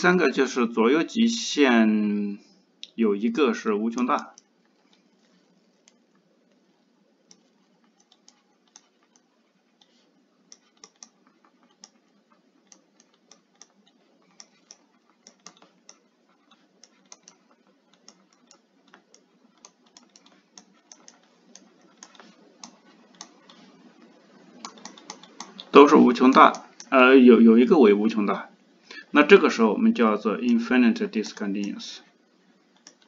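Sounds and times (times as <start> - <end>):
stylus tapping on tablet screen: 3.9 - 25.7, 32.7 - 33.0.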